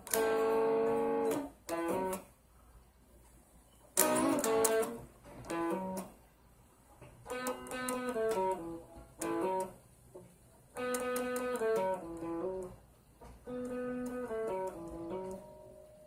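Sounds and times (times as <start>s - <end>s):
plucked guitar notes: 4.0s - 6.1s, 7.2s - 9.7s, 10.8s - 12.7s, 13.4s - 16.0s.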